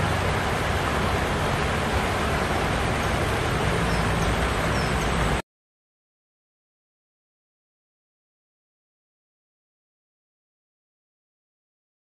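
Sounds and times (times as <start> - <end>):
river water running over rocks: 0.0 - 5.4.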